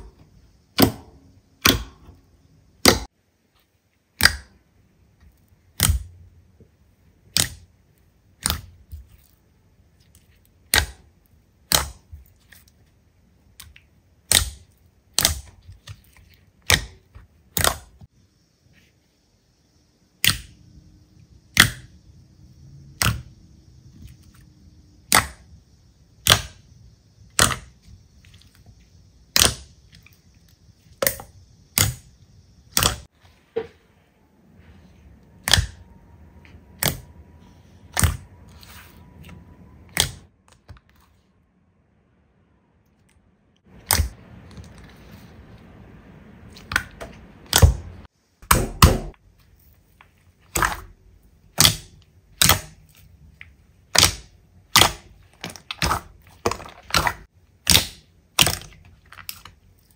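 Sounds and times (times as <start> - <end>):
slime popping: 29.3 - 29.7, 53.8 - 59.5.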